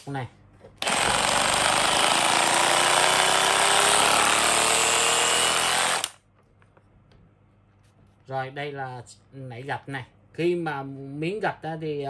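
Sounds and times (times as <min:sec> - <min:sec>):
rotary hammer running: 0:00.8 - 0:06.2.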